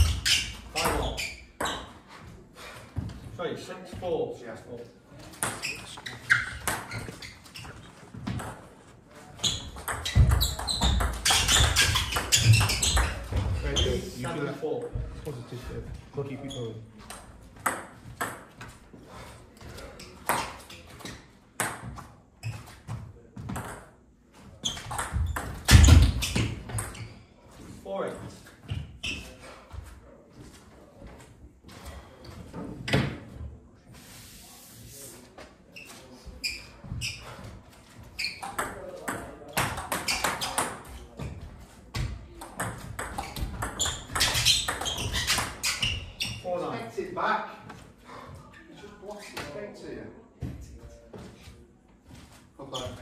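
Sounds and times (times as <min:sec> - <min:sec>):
table tennis ball pinging: 0:09.5 - 0:13.3, 0:42.4 - 0:46.0.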